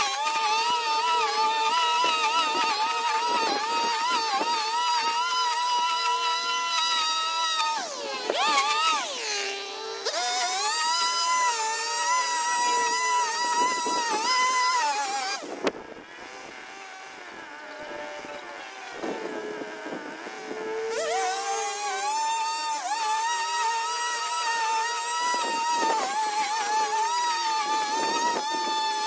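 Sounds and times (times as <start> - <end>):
string trimmer motor whining: 0.0 - 29.0.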